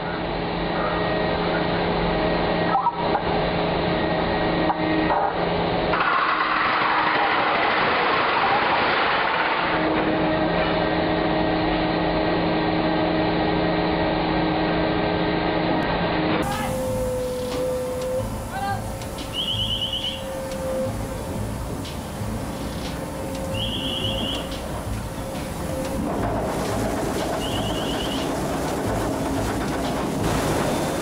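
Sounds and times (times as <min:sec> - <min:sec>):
mining machinery humming: 0:03.3 - 0:31.0
loud hissing rush: 0:16.4 - 0:31.0.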